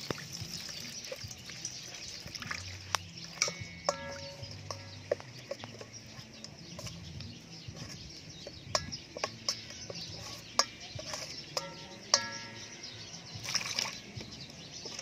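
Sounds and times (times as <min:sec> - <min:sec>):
metal spoon scraping steel bowl: 0:03.2 - 0:15.0.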